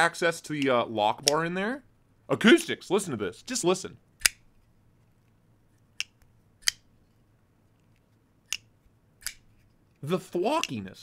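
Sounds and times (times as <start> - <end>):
folding knife snapping open and shut: 4.2 - 4.5, 8.5 - 9.5.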